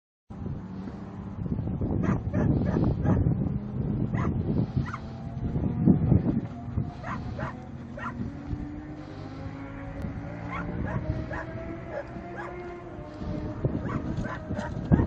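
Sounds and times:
dog barking: 2.0s - 3.2s, 4.1s - 5.0s, 7.0s - 8.2s, 10.5s - 12.6s, 13.8s - 15.0s.

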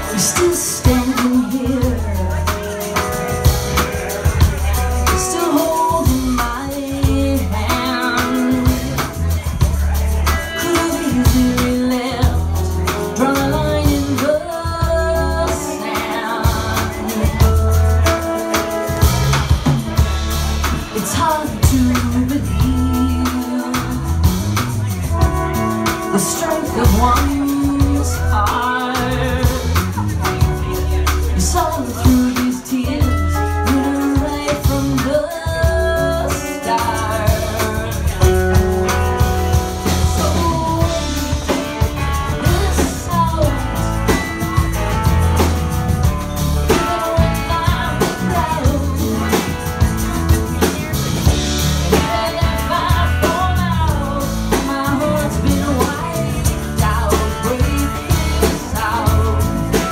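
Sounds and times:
woman singing: 0.0s - 19.0s, 20.2s - 59.9s
drum kit: 0.0s - 59.9s
electric guitar: 0.0s - 59.9s
heavy bass notes: 16.5s - 32.3s, 33.0s - 59.9s.

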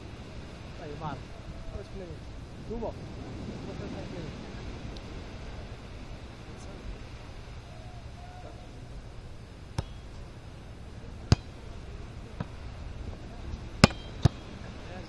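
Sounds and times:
volleyball hit slaps: 9.7s - 10.2s, 11.2s - 11.6s, 13.8s - 14.5s.

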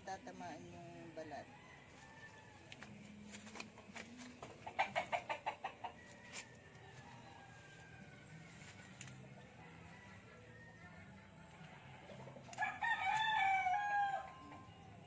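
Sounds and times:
chicken clucking: 3.6s - 6.5s.

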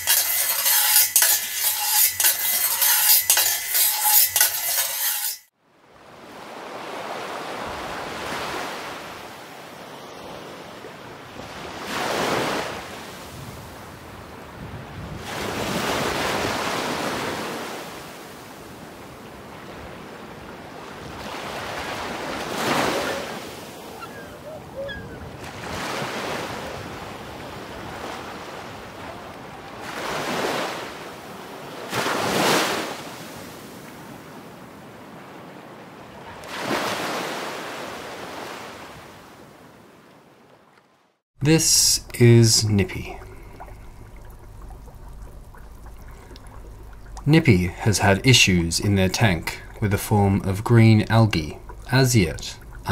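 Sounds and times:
ocean waves washing in: 5.8s - 40.0s.

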